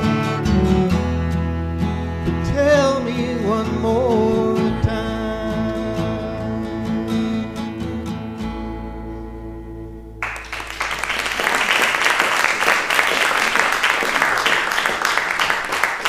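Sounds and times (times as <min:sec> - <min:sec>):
acoustic guitar and bass chord: 0:00.0 - 0:10.6
audience applause: 0:10.2 - 0:16.0.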